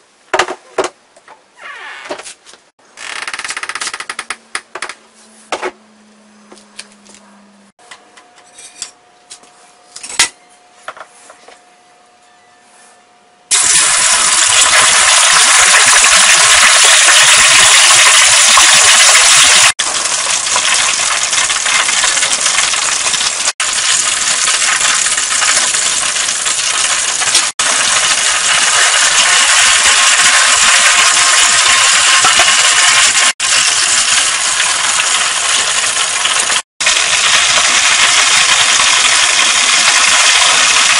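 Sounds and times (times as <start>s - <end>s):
oil sizzling and bubbling: 13.5s - 40.9s.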